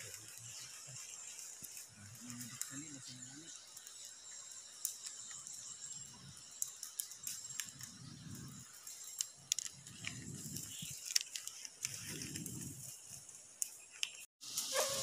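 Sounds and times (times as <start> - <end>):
dry palm fronds crackling: 0.0 - 15.0.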